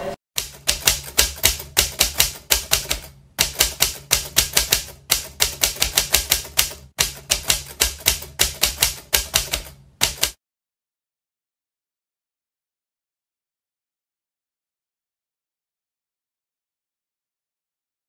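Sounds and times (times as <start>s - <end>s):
typewriter keys clacking: 0.4s - 10.4s.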